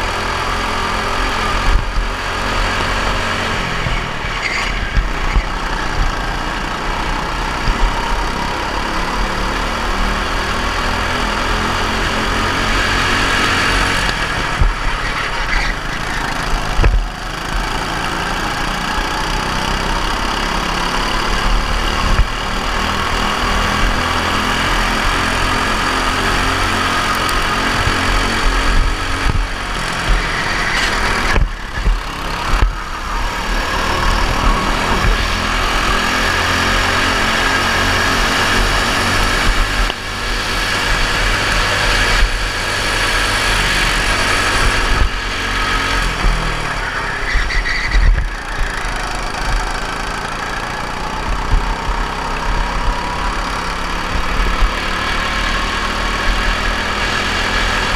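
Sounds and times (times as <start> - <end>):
racing kart engine running hard: 0.0 - 57.9.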